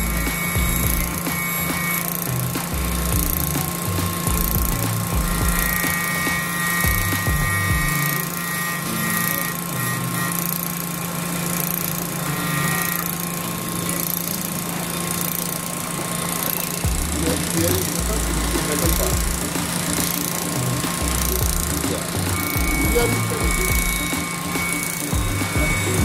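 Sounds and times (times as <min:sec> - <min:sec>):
rotary cutting bit motor hum: 0:00.0 - 0:26.0
thin steady whine: 0:00.0 - 0:26.0.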